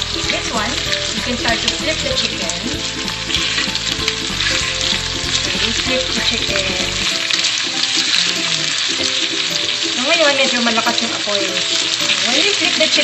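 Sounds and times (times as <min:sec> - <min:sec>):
chicken sizzling in a frying pan: 0:00.0 - 0:13.0.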